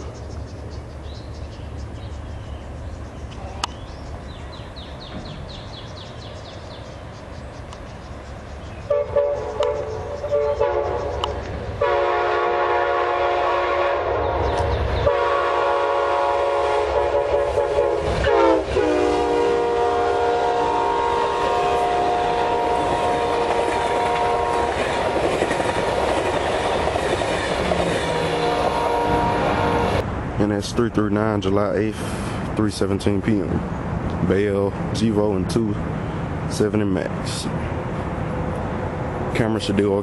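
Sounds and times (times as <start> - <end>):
low steady train rumble: 0.0 - 40.0
locomotive horn blasts: 8.9 - 24.8, 28.0 - 30.0.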